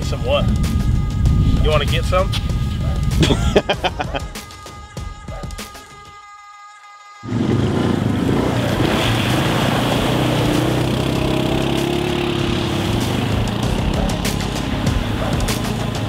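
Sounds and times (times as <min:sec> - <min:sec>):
background music: 0:00.0 - 0:16.0
atv engine under throttle: 0:07.3 - 0:16.0
water spraying and splashing: 0:07.4 - 0:16.0.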